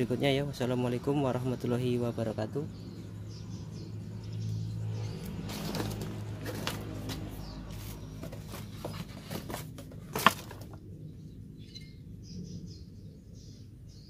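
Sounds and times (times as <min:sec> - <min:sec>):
metal part and box handling: 0:05.5 - 0:10.8.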